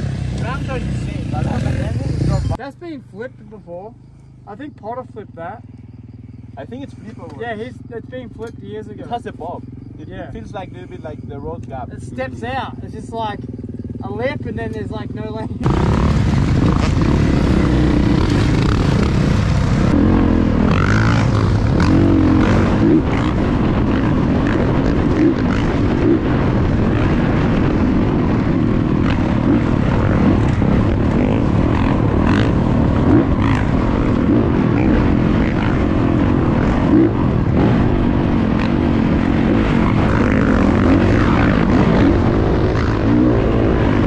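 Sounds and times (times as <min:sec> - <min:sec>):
dirt bike engine revving: 0:00.0 - 0:02.6, 0:04.0 - 0:44.0
wind rushing over microphone: 0:10.0 - 0:44.0.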